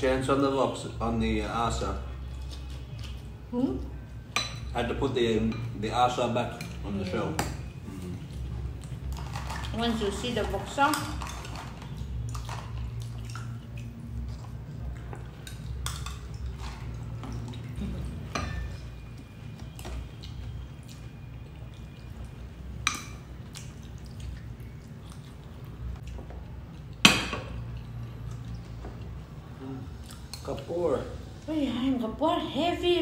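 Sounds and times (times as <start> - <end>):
low steady hum: 0.0 - 33.0
spoons clinking on ceramic bowls: 18.2 - 19.0.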